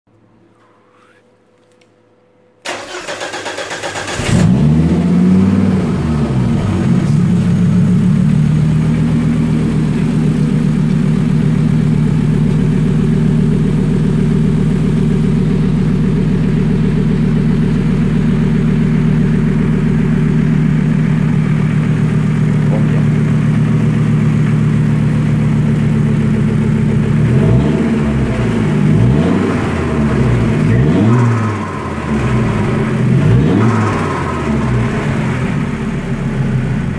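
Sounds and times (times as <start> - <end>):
starter motor cranking: 2.7 - 4.6
car engine idling and revving: 2.8 - 36.9.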